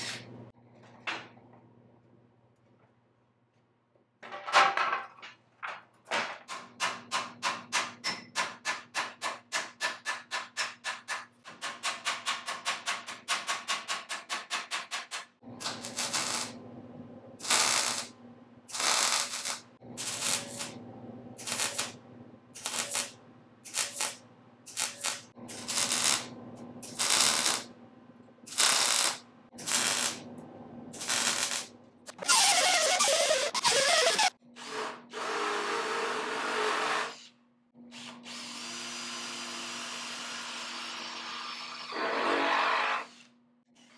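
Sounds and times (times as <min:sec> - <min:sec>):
welder buzzing bursts: 0:15.6 - 0:16.6, 0:17.4 - 0:18.1, 0:18.7 - 0:20.8, 0:21.4 - 0:22.0, 0:22.6 - 0:27.7, 0:28.5 - 0:30.3, 0:31.0 - 0:31.7.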